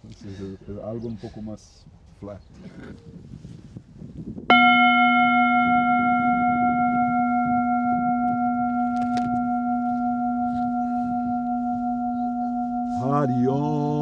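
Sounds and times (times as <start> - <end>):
singing bowl ringing: 4.5 - 14.0.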